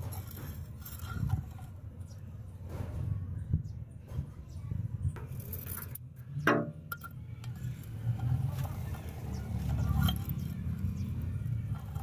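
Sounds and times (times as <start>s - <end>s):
blade clinking against ceramic jar: 6.9s - 12.0s.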